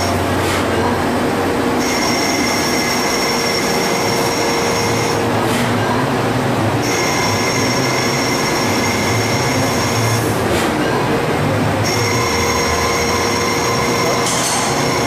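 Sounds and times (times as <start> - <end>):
machine running: 0.0 - 15.0
lathe cutting metal whine: 1.7 - 5.3, 11.8 - 15.0.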